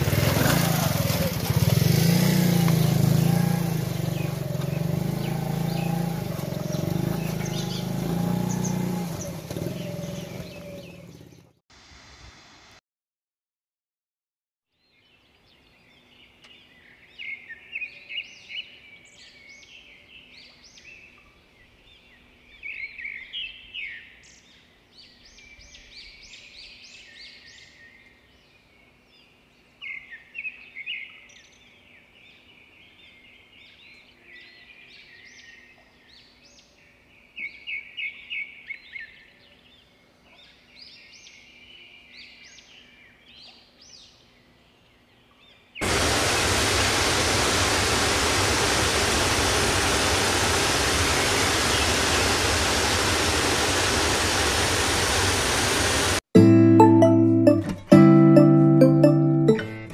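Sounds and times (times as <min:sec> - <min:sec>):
birds chirping and singing: 0:02.5 - 0:11.5.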